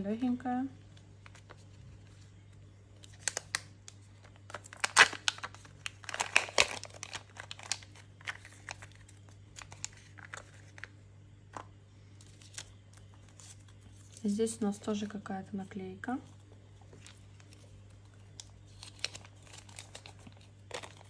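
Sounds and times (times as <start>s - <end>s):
foil seal peeling off plastic: 3.0s - 10.9s, 18.3s - 21.0s
paper crinkling and tearing: 3.0s - 10.9s, 11.5s - 14.4s, 16.9s - 21.0s.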